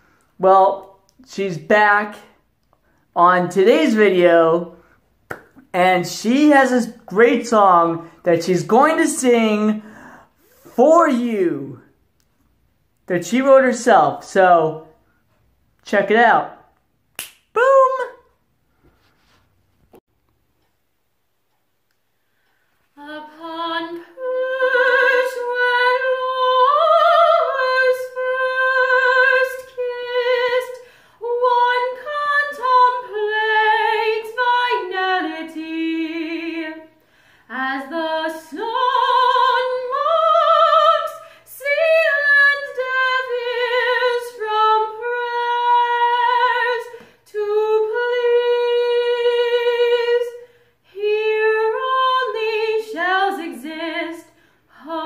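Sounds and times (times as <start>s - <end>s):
woman singing unaccompanied: 23.0s - 55.0s.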